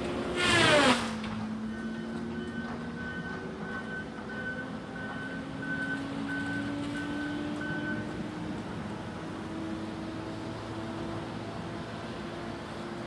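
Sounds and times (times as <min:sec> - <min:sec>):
diesel engine running: 0:00.0 - 0:13.0
backup alarm beeping: 0:01.7 - 0:08.1.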